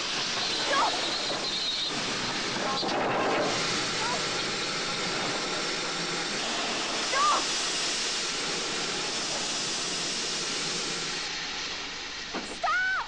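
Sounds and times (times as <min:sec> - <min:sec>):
train wheels grinding on rails: 0:00.0 - 0:13.0
person shouting: 0:12.6 - 0:13.0.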